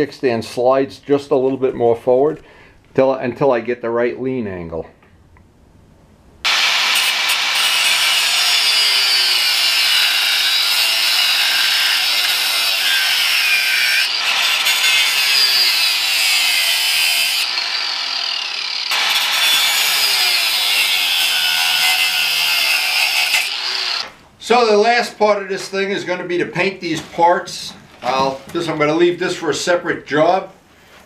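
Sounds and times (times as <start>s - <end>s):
angle grinder grinding metal: 6.5s - 24.1s.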